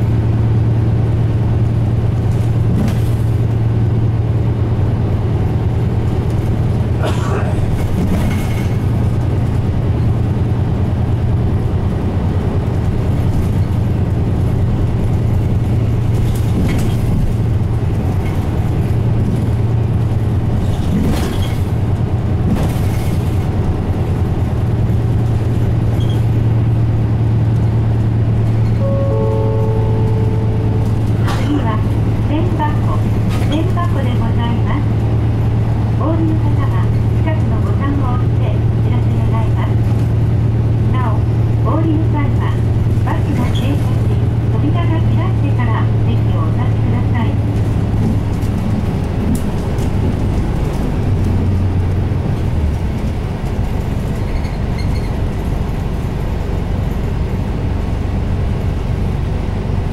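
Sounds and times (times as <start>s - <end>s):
bus diesel engine droning: 0.0s - 59.9s
road noise: 0.0s - 59.9s
bus body knocks and rattles: 1.8s - 3.8s, 6.0s - 10.7s, 12.5s - 28.8s, 47.4s - 57.1s
short electronic tones: 28.8s - 31.2s.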